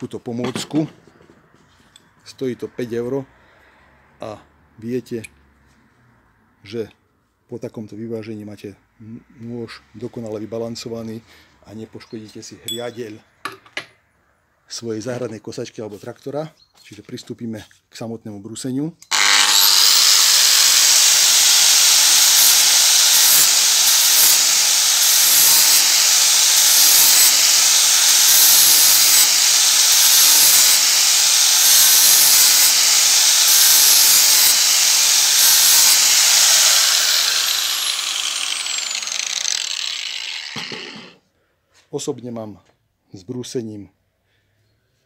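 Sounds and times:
angle grinder grinding steel: 19.0 - 41.2
grinder winding down: 19.0 - 41.2.

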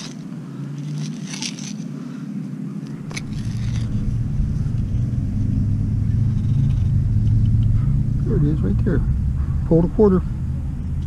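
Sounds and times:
low rumble: 2.9 - 11.0.

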